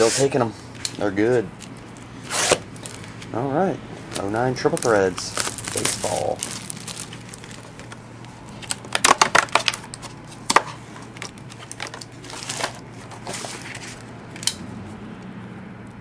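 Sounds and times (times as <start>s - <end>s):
cardboard rustling and scraping: 0.0s - 0.5s, 1.2s - 3.3s, 4.0s - 14.1s
cardboard box crackling snaps: 4.1s - 12.8s.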